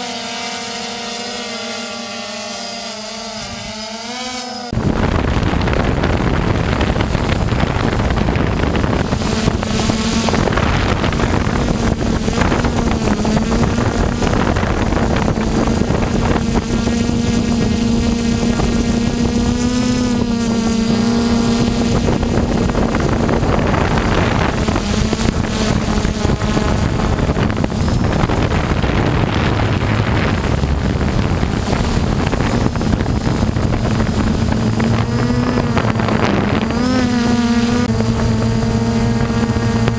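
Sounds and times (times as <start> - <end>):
drone motors whirring: 0.0 - 39.9.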